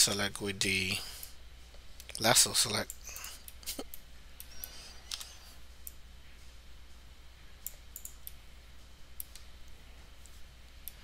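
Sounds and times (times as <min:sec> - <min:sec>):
faint low hum: 0:00.0 - 0:11.0
computer mouse clicks: 0:02.9 - 0:06.0, 0:07.6 - 0:08.4.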